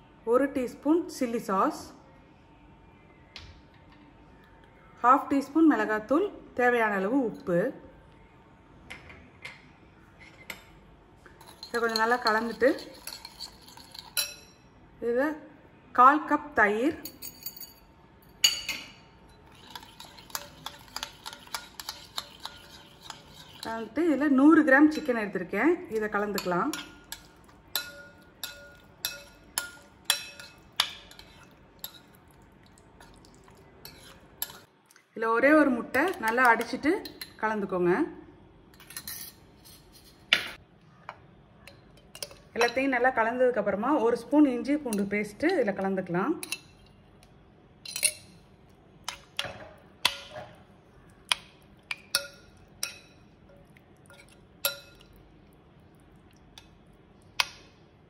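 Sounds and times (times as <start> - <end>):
stirring food: 11.3 - 14.5, 19.3 - 24.0, 25.9 - 34.9, 48.6 - 57.6
metal spoon clinking on glass bowl: 11.4 - 14.6, 17.0 - 23.9, 26.0 - 32.2, 33.8 - 34.7, 41.7 - 42.8, 46.4 - 47.0, 47.8 - 48.4, 51.3 - 55.2.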